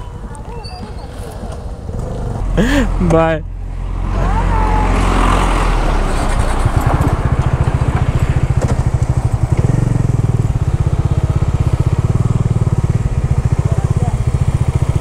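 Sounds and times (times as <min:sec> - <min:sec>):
motorcycle engine idling: 0:00.0 - 0:02.9, 0:06.8 - 0:15.0.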